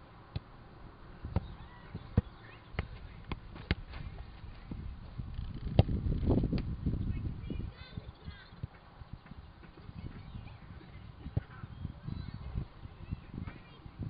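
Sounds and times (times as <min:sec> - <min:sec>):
football being kicked: 0:01.2 - 0:04.2.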